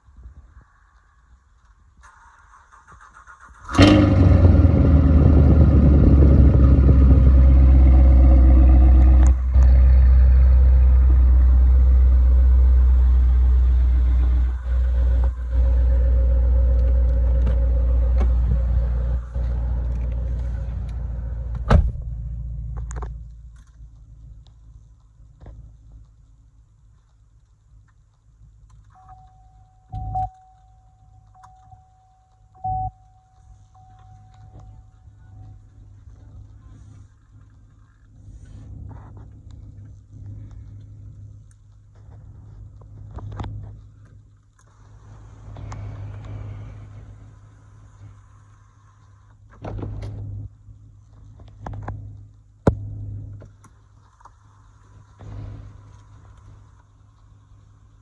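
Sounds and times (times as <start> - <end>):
car engine idling: 1.0 - 58.0
rustling and clunking: 15.0 - 47.2, 49.1 - 57.2.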